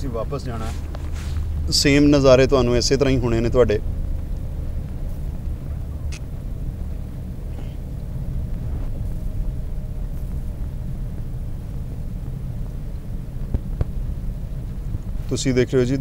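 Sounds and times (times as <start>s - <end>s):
car driving rumble inside cabin: 0.0s - 16.0s
faint steady hum: 0.0s - 16.0s.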